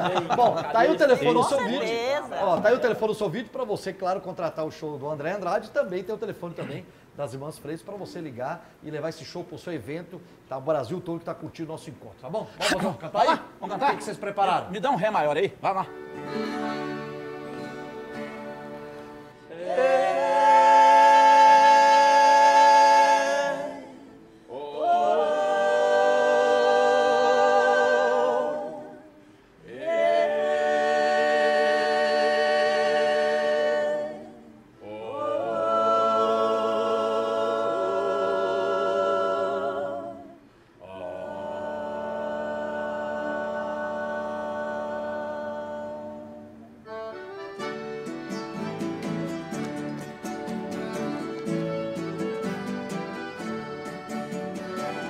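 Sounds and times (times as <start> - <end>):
voices singing in harmony: 16.0 - 55.0.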